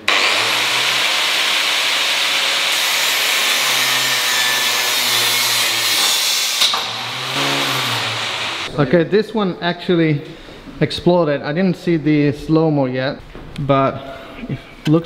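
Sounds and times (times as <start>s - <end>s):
angle grinder cutting steel: 0.0s - 8.7s.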